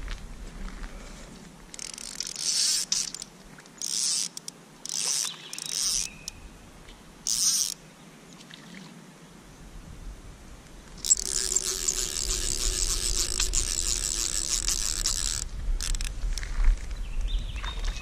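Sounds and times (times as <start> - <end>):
fishing reel drag buzzing: 1.7 - 6.4, 7.2 - 7.8, 11.0 - 16.1.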